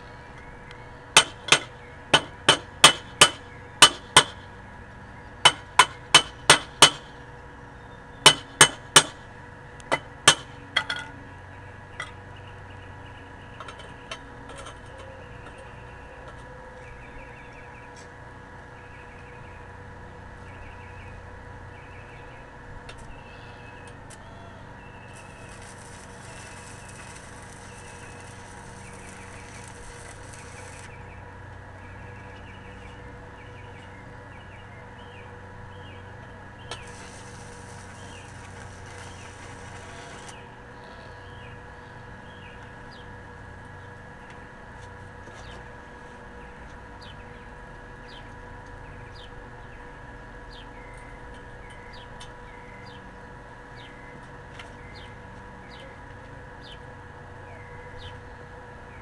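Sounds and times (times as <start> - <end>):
welding arc crackling: 25.0 - 31.1, 36.7 - 40.5.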